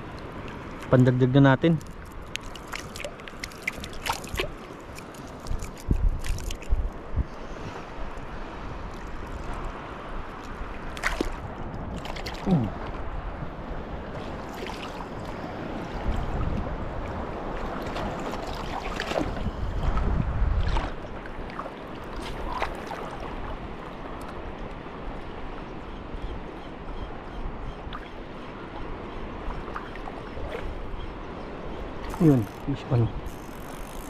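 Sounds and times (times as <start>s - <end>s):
water washing on shore: 0.0s - 6.8s, 8.6s - 24.6s, 31.9s - 33.8s
wind rumbling on microphone: 0.0s - 34.0s.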